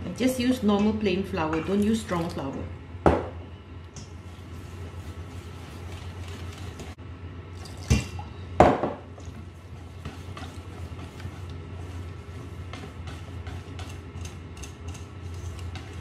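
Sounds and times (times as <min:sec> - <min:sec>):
steady low hum: 0:00.0 - 0:16.0
whisk beating batter in bowl: 0:04.2 - 0:07.0, 0:09.2 - 0:16.0.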